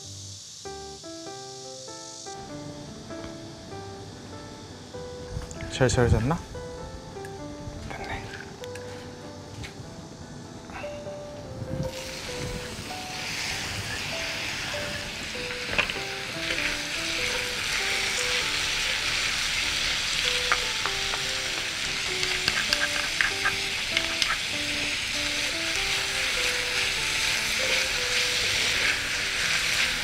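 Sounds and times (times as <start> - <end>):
zucchini sizzling in oil: 0.0 - 5.9, 11.7 - 30.0
soft background melody: 0.0 - 30.0
wooden spatulas clicking on pan: 20.5 - 24.5.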